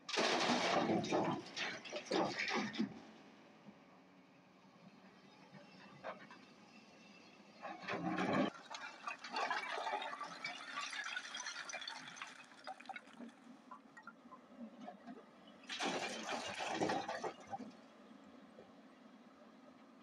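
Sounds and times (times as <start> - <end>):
stone pouring into truck bed: 0.1 - 2.6, 15.7 - 17.4.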